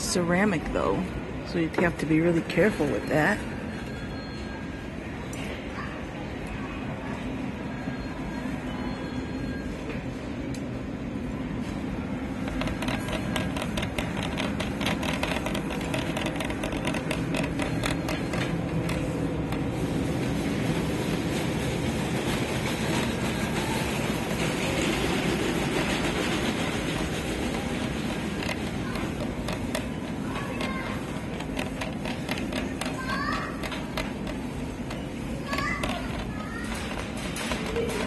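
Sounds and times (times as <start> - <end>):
shopping cart rattling on tiles: 12.3 - 38.0
quick regular clicks: 12.4 - 19.7.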